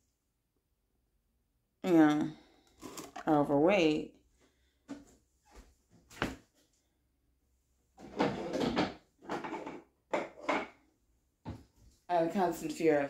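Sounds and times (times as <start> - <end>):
clatter and rubbing: 8.0 - 10.6.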